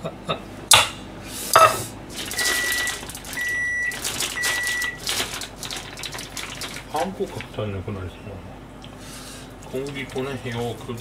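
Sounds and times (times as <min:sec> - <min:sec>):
high electronic beeps: 0:02.3 - 0:05.0.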